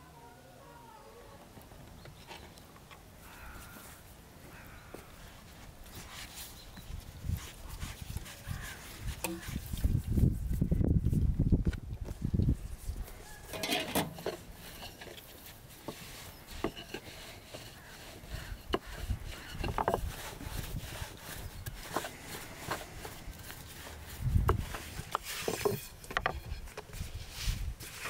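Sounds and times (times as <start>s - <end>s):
rolling pin on wooden board: 15.8s - 27.1s.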